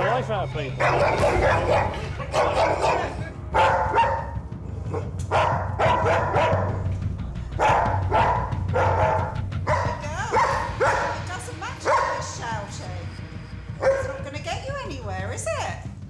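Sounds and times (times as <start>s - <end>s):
dog barking: 0.8s - 6.9s, 7.6s - 12.5s, 13.8s - 14.2s.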